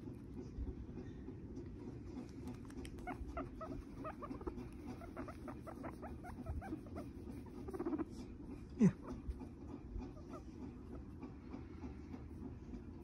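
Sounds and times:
guinea pig chewing crunches: 2.0s - 11.1s.

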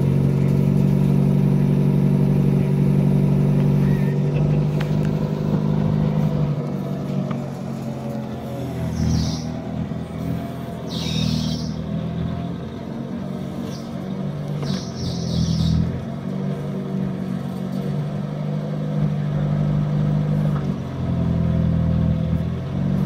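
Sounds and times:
jeep engine running: 0.0s - 23.0s.

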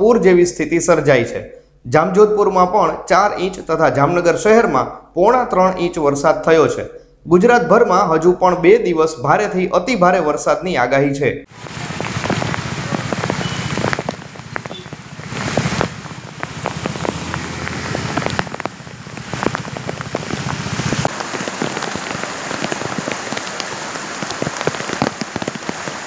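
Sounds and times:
heavy rain pouring: 11.5s - 26.0s.

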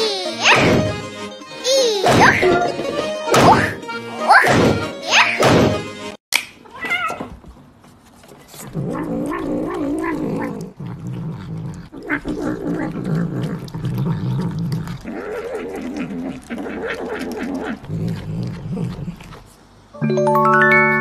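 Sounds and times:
cat growling and mewing: 6.7s - 7.3s, 8.6s - 19.5s.

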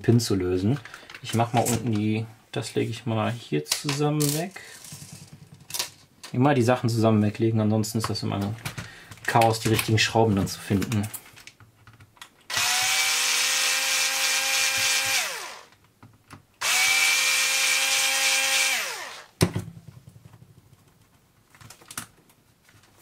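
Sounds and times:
electric screwdriver whine: 12.5s - 15.7s, 16.6s - 19.3s.

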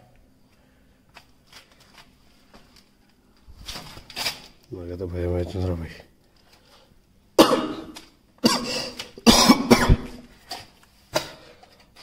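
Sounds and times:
person coughing harshly: 7.4s - 10.2s, 11.1s - 11.6s.

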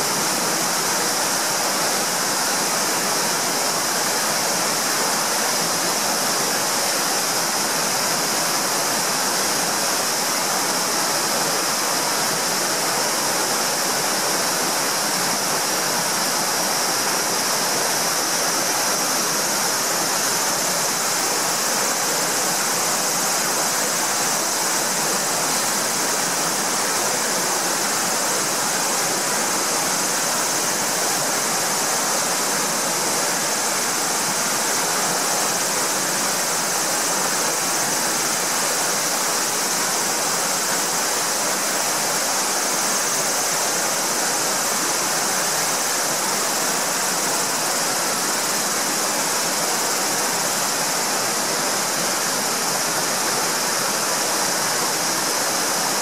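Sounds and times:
small waterfall rushing: 0.0s - 56.0s.

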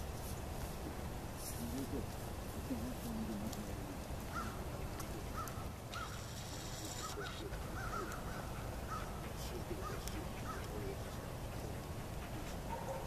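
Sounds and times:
steady outdoor rumble: 0.0s - 13.0s
short animal calls: 5.3s - 9.2s.

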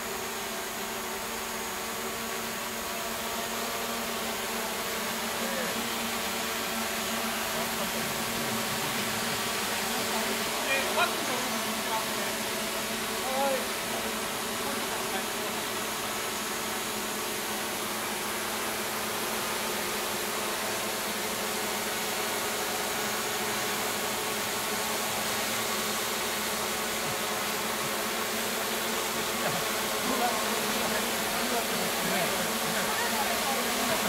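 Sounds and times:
drone propellers buzzing: 0.0s - 34.0s.

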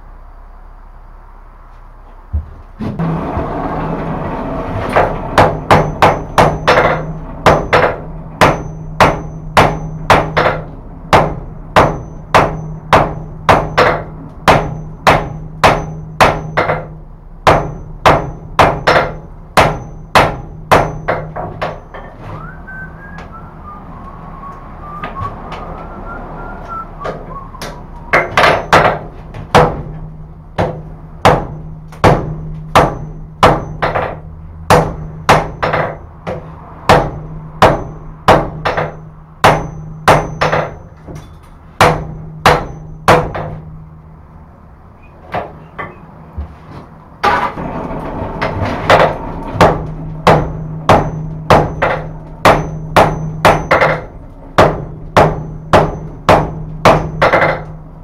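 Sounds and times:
hammer striking steel on anvil: 4.9s - 22.2s, 27.0s - 43.8s, 48.9s - 57.9s.

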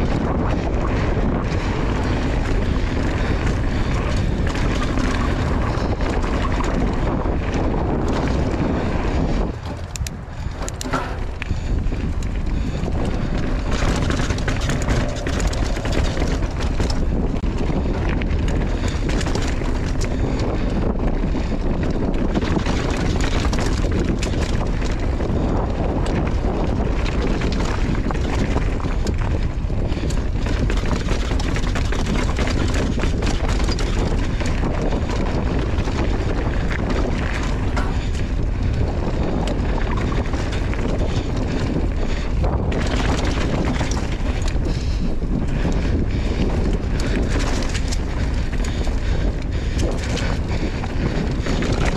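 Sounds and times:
bike knocks and rattles: 0.0s - 51.9s
tyre noise on dirt: 0.0s - 51.9s
wind buffeting microphone: 0.0s - 51.9s.

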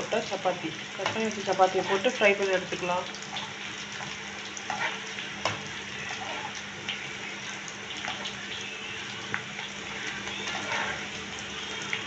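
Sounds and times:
oil sizzling and bubbling: 0.0s - 12.0s.

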